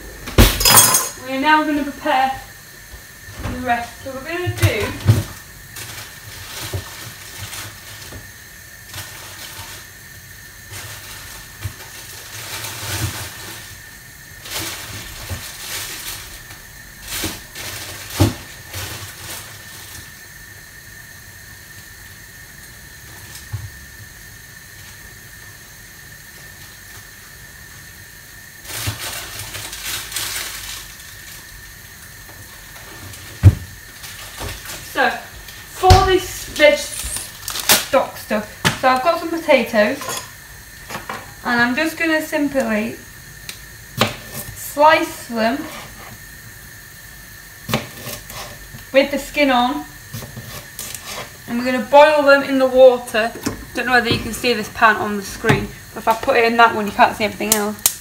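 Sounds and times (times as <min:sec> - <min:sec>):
kitchen items knocking and clattering: 0:00.1 - 0:01.8, 0:35.7 - 0:37.9, 0:52.9 - 0:57.7.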